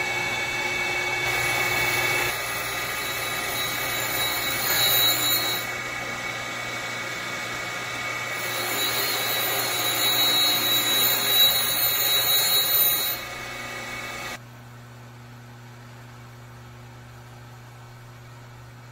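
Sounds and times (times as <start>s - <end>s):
grinder motor humming: 0.0s - 14.4s
grinding wheel hissing on metal: 1.2s - 14.4s.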